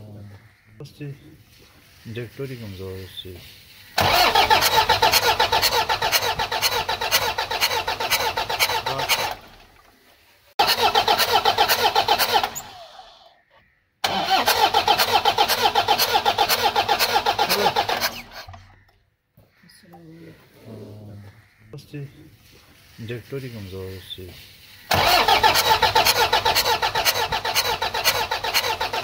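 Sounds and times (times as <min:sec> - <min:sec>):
diesel engine cranking on starter: 0:04.0 - 0:10.0, 0:10.6 - 0:13.3, 0:14.0 - 0:18.7, 0:24.9 - 0:29.0.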